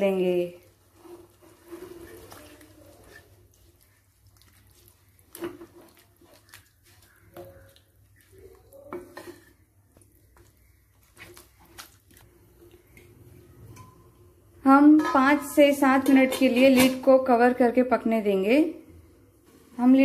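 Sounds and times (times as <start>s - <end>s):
spatula scraping a pan: 0.8s - 7.6s, 8.9s - 9.7s.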